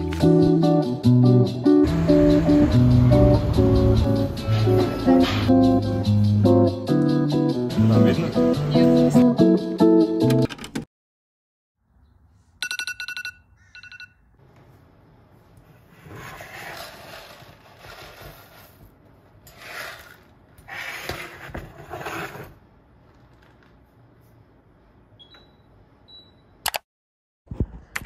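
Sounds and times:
electronic alarm beeping: 0:12.6 - 0:14.2
rustling noise: 0:14.6 - 0:22.6.

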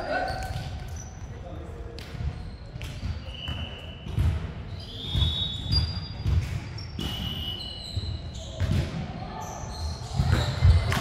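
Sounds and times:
shoes squeaking on hardwood floor: 0:04.7 - 0:08.6.

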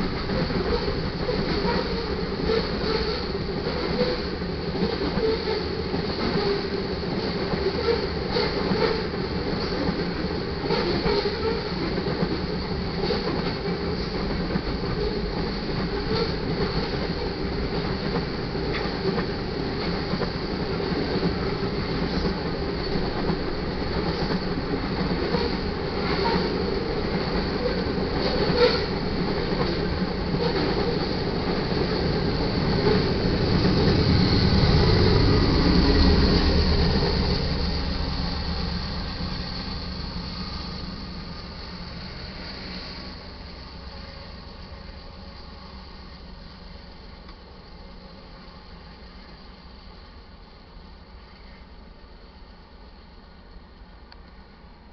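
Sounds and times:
wheels clicking over rail joints: 0:00.0 - 0:43.4
diesel locomotive: 0:00.0 - 0:54.9
freight cars rumbling past: 0:27.6 - 0:46.9.

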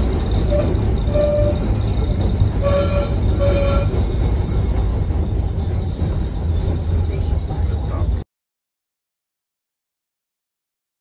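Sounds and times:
trolley wheels rumbling: 0:00.0 - 0:08.2
wheels squealing on rails: 0:00.0 - 0:08.2.

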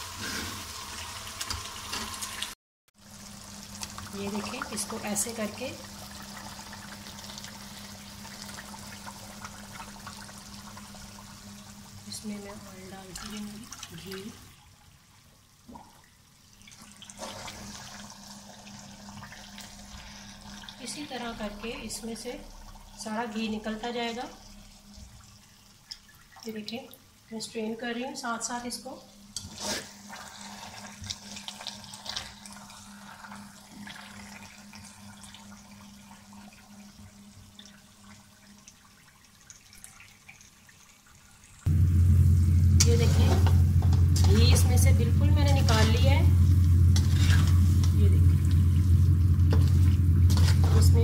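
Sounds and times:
ghee trickling and dripping: 0:03.1 - 0:27.4, 0:30.1 - 0:41.7
ghee sizzling in a pan: 0:28.9 - 0:37.2, 0:41.5 - 0:51.0.

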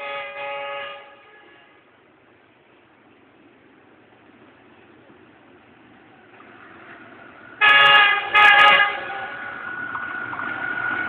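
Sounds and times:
train horn blasts: 0:00.0 - 0:01.9, 0:07.6 - 0:09.6
approaching train noise: 0:00.0 - 0:11.0.

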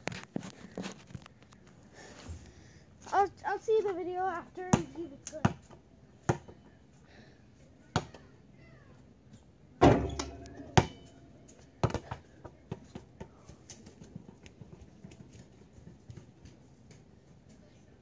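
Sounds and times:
basketball bouncing on pavement: 0:04.6 - 0:06.6, 0:07.9 - 0:08.3, 0:09.8 - 0:11.1, 0:11.8 - 0:17.0
basketball clanging against hoop: 0:09.8 - 0:12.2.

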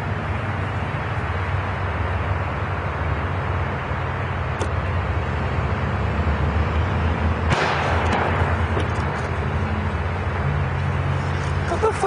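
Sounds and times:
road traffic rumble: 0:00.0 - 0:12.0
loud bang: 0:07.5 - 0:08.6.

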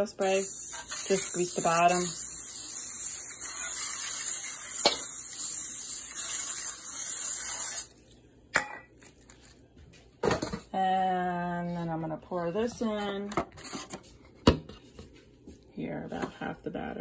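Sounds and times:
cooking spray hissing: 0:00.0 - 0:08.0.

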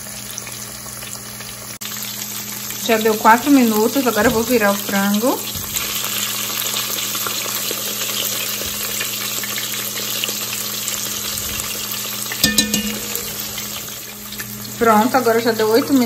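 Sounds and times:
chicken frying in oil: 0:00.0 - 0:16.0
short metallic clink: 0:12.4 - 0:13.5.

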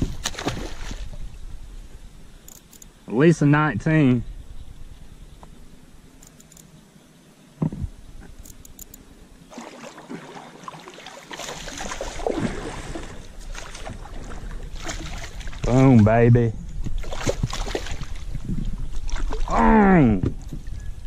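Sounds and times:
fish splashing in water: 0:00.0 - 0:01.2, 0:09.5 - 0:15.7, 0:17.0 - 0:18.3.

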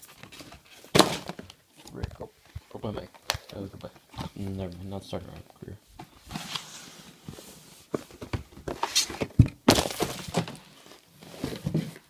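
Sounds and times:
cardboard box thud: 0:00.9 - 0:01.4, 0:08.3 - 0:10.7.

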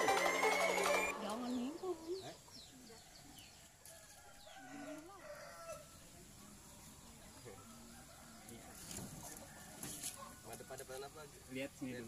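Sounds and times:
faint rooster crowing: 0:03.0 - 0:06.0, 0:07.5 - 0:11.0.

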